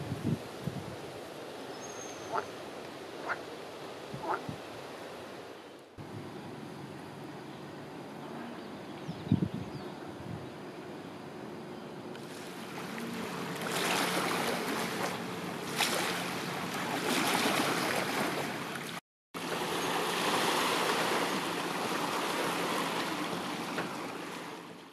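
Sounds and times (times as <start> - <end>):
wind blowing in gusts: 0.0 - 6.6, 9.0 - 10.7.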